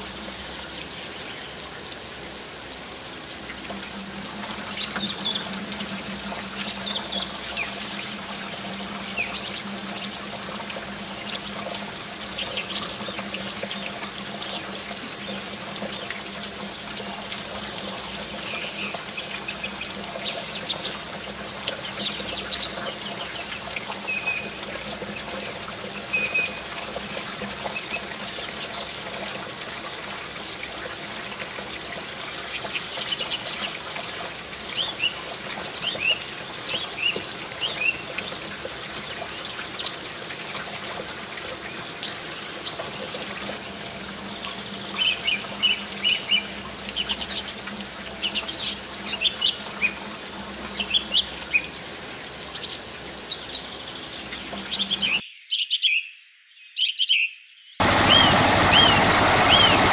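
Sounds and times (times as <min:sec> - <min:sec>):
water trickling from hose: 0:00.0 - 0:55.2
pump humming: 0:57.8 - 0:59.9.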